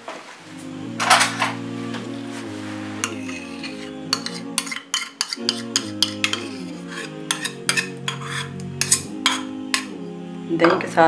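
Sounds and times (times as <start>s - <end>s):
background music: 0.4s - 11.0s
metal spoon scraping bowl: 3.0s - 9.9s.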